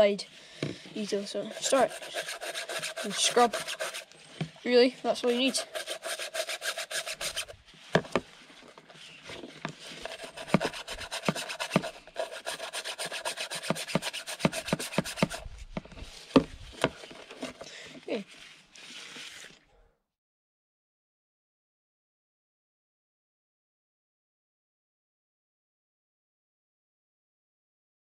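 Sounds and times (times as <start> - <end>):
toothbrush scrubbing metal mesh: 1.0 - 4.1, 5.1 - 7.5, 9.9 - 15.4.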